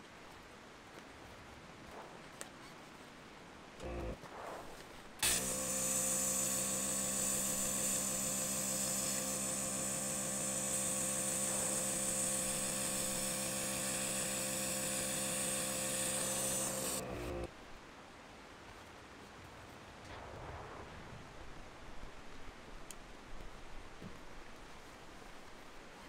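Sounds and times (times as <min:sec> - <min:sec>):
electric air pump running: 0:03.8 - 0:04.2, 0:05.2 - 0:17.5.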